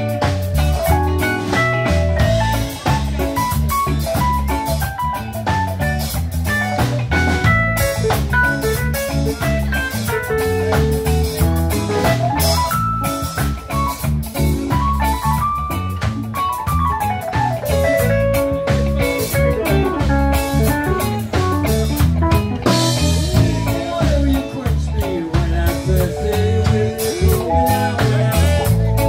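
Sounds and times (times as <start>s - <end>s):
drum kit: 0.0s - 29.0s
electric bass: 0.0s - 29.0s
electric guitar single-note lines: 6.7s - 24.0s.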